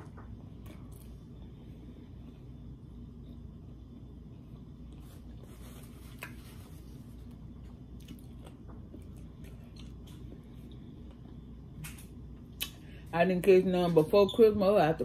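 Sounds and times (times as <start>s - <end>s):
low room hum: 0.0s - 15.0s
person chewing: 4.8s - 11.7s.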